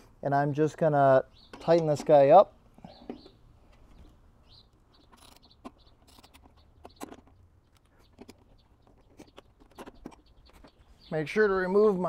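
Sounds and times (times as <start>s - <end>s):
torque wrench clicks: 5.0s - 7.2s.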